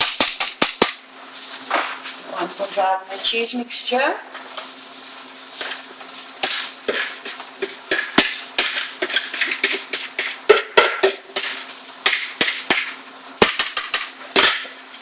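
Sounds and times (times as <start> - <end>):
bowl knocking on saucepan: 9.6 - 11.2.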